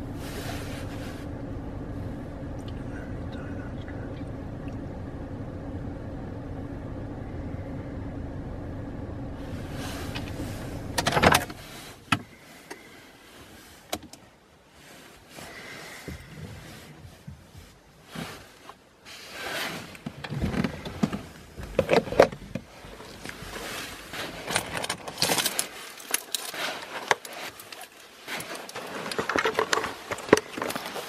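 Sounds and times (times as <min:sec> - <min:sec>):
small objects rustling and clinking: 0:22.8 - 0:31.0.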